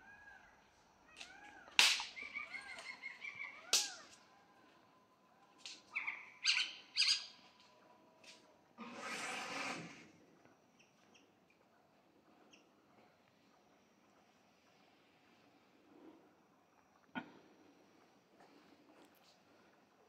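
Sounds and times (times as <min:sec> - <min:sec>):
sharp snapping cracks: 0:01.7 - 0:02.2, 0:03.6 - 0:04.2.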